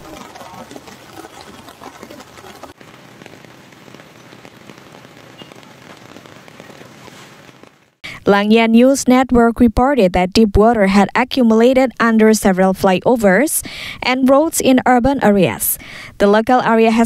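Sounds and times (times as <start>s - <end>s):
heavy rain on flooded street: 2.7s - 8.0s.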